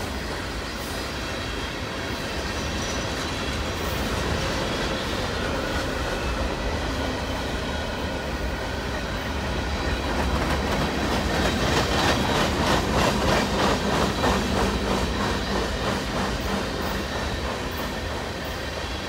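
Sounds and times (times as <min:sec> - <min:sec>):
train rumble: 0:00.0 - 0:19.0
train wheels clacking over rail joints: 0:08.8 - 0:19.0.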